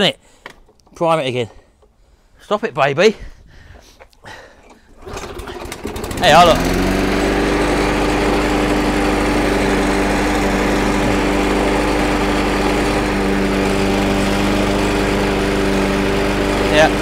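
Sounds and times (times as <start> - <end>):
lawn mower engine running: 4.9 - 17.0.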